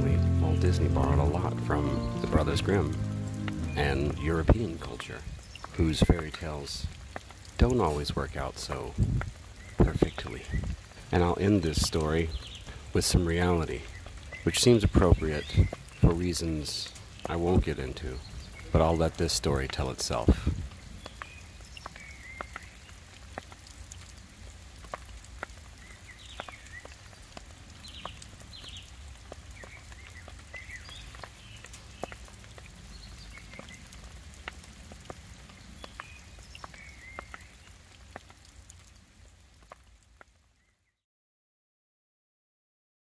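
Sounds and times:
raindrops ticking on hard surfaces: 0.0 - 40.9.

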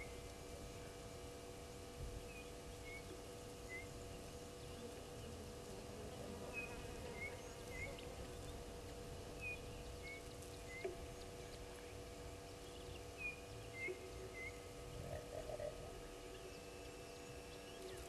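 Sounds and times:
steady background hum: 0.0 - 18.0
bird calling: 2.3 - 4.0, 6.4 - 8.6, 9.4 - 11.9, 12.6 - 18.0.

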